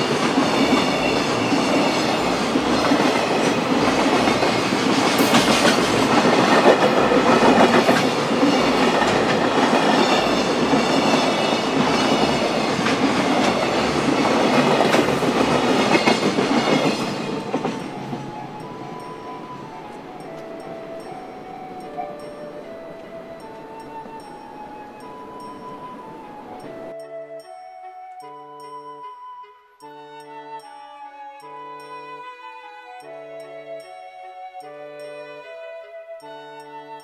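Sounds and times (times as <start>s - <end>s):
level crossing warning bell: 0.0s - 27.5s
train wheels clattering over rail joints: 0.1s - 18.4s.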